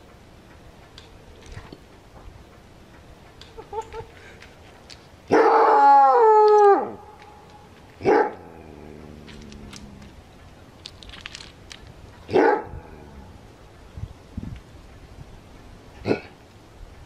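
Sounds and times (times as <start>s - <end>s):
coyote long falling call: 5.3s - 7.2s.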